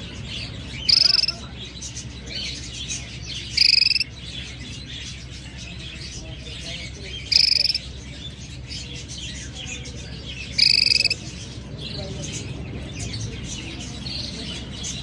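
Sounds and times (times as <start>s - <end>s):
faint bird twittering: 0.0s - 15.0s
canary trills: 0.2s - 5.2s, 7.1s - 8.0s, 10.3s - 11.4s.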